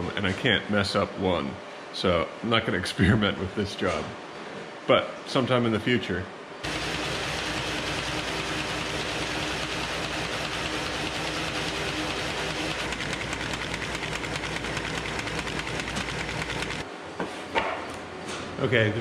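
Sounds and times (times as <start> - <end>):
fast even ticking of sheets: 6.6 - 16.8
motor and roller hum: 6.6 - 16.9.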